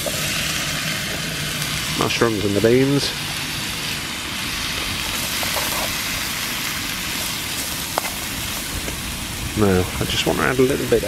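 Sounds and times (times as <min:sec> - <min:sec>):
gas stove rushing hiss: 0:00.0 - 0:11.0.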